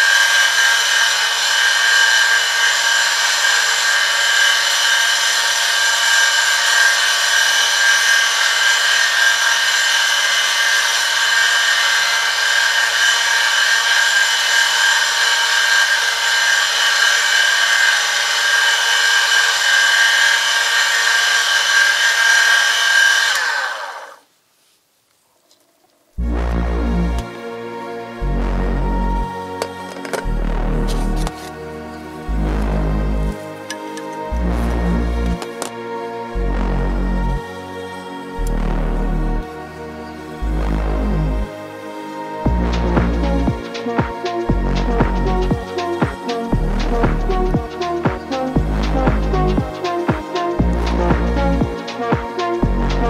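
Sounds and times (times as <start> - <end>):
high-pitched metal-on-metal screech: 0.0 - 24.2
low electric motor hum: 0.0 - 24.2, 26.2 - 53.0.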